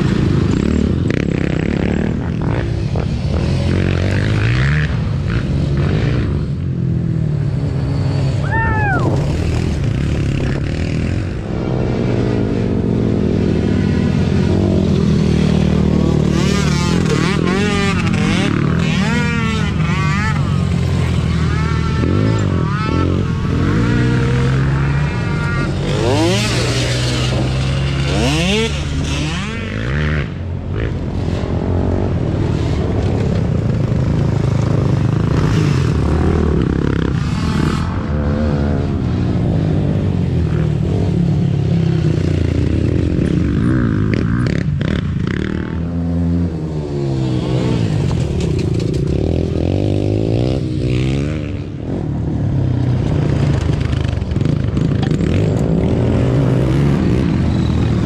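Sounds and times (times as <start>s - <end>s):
quad engines revving: 0.0s - 58.0s.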